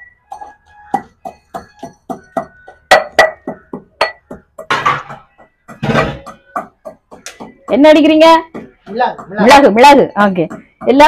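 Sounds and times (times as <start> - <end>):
pestle pounding in metal mortar: 0.3 - 11.0.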